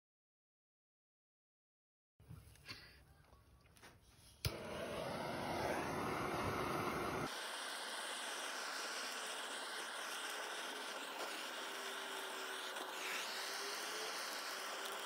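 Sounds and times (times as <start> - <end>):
torch igniter click: 4.4 - 7.3
torch flame hissing: 4.4 - 15.0.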